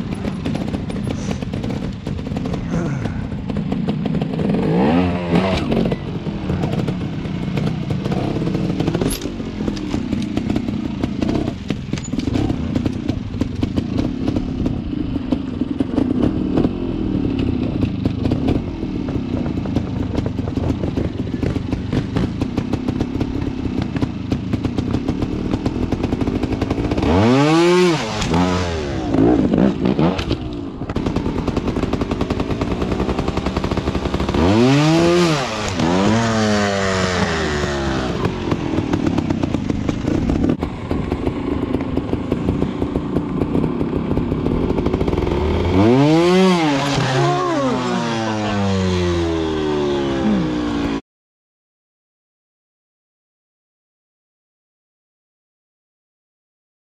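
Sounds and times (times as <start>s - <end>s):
rattling and clatter: 0.0s - 4.6s, 6.5s - 16.7s
motorcycle engine revving: 0.0s - 51.0s.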